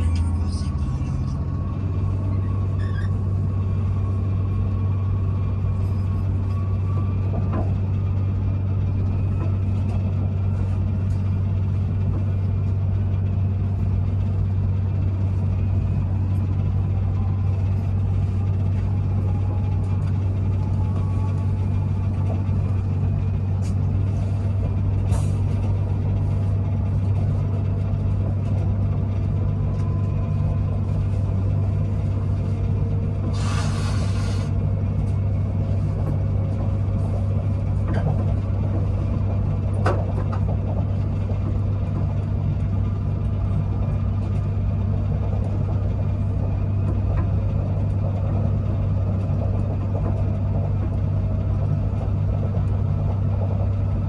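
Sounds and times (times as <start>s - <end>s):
train rumbling from inside carriage: 0.0s - 54.0s
brief hiss: 33.4s - 34.5s.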